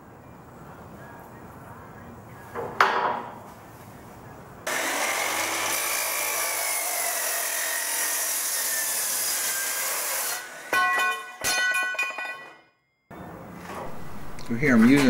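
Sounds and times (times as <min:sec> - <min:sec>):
miter saw cutting metal: 0:04.7 - 0:10.8.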